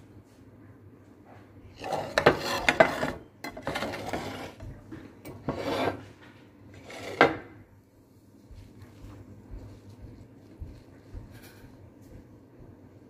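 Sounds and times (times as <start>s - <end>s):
rustling and scraping of plate: 1.2s - 7.7s, 8.4s - 12.2s.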